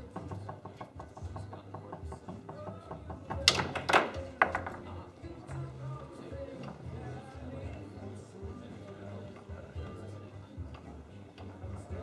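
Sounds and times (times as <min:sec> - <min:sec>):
foosball ball knocking: 0:00.1 - 0:04.9
foosball ball struck hard: 0:03.3 - 0:04.8.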